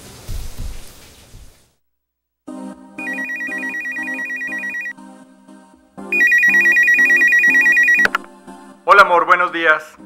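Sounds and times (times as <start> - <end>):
telephone ringing electronic trill: 3.0 - 4.9, 6.1 - 8.1.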